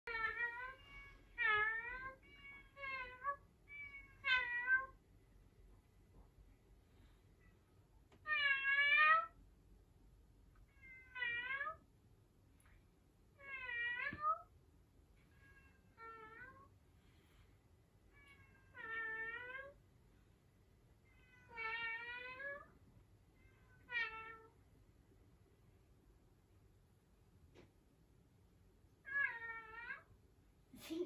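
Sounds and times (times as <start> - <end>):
cat meowing: 0.1 - 5.0, 10.7 - 11.8, 13.4 - 14.5, 23.6 - 24.5, 29.1 - 30.1.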